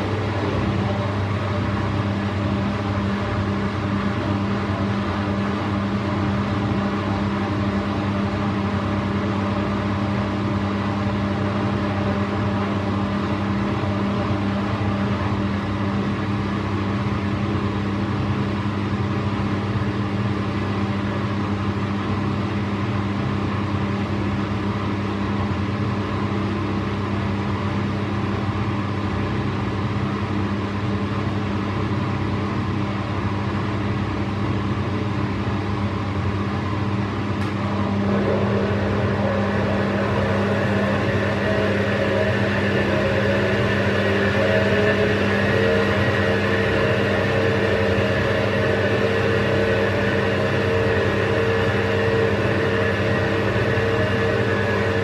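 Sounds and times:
washing machine humming: 0.0 - 55.0.

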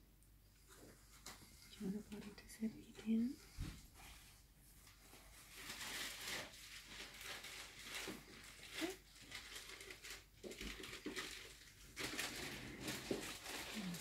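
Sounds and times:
cloth rustling: 3.5 - 14.0.

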